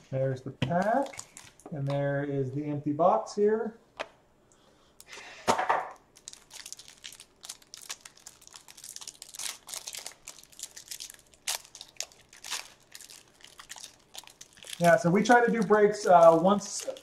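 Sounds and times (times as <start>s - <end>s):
plastic wrapper crinkling and tearing: 0.8s - 1.7s, 6.0s - 17.0s.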